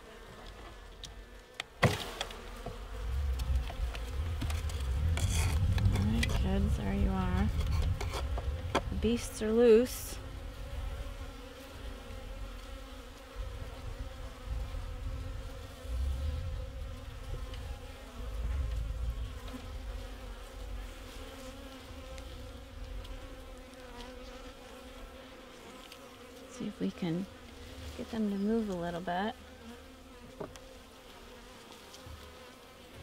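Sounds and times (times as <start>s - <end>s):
bees buzzing: 0.0s - 33.0s
low rumble: 3.0s - 9.5s, 13.4s - 20.9s.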